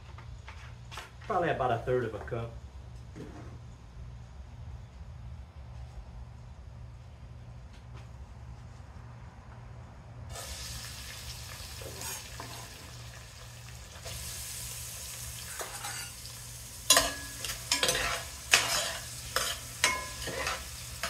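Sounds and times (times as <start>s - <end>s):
vegetables sizzling in hot oil: 10.3s - 21.0s
spoon knocking and scraping pot: 16.9s - 21.0s.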